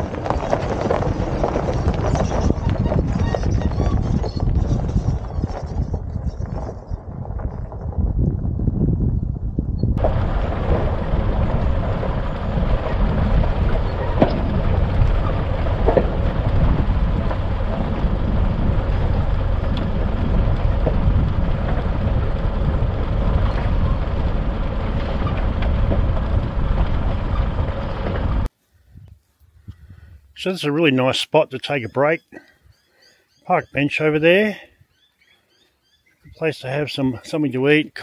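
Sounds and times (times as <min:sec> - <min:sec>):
vehicle rumbling on dirt track: 0:00.0 - 0:28.5
knocks and clicks from bumps: 0:10.0 - 0:28.5.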